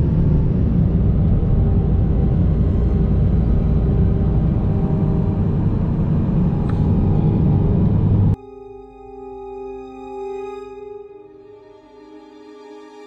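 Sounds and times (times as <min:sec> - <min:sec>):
car road and engine rumble: 0:00.0 - 0:08.4.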